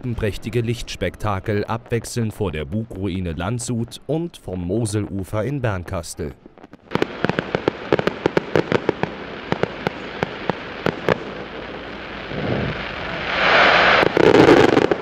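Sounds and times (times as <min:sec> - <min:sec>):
fireworks cracking and popping: 0:06.5 - 0:15.0.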